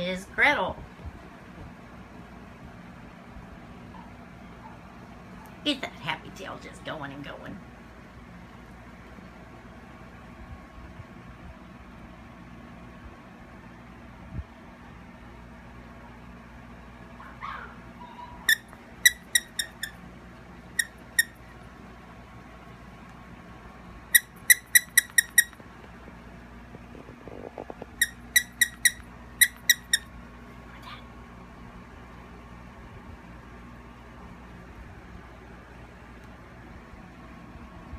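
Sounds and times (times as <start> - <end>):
dog toy squeaking: 18.4 - 20.0, 20.8 - 21.4, 24.2 - 25.6, 28.0 - 30.1.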